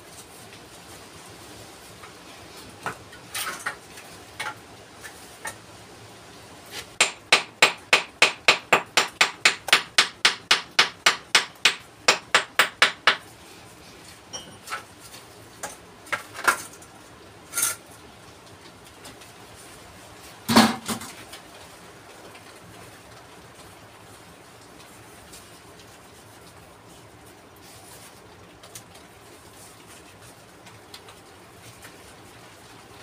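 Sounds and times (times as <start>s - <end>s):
hammer striking stone: 7.0s - 13.2s.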